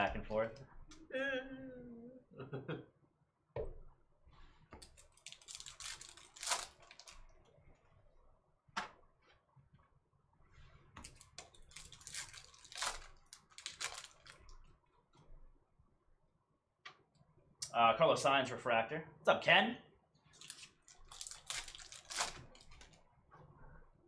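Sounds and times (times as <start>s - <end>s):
foil pack crinkling and tearing: 4.8s - 7.3s, 11.0s - 14.6s, 20.3s - 23.0s.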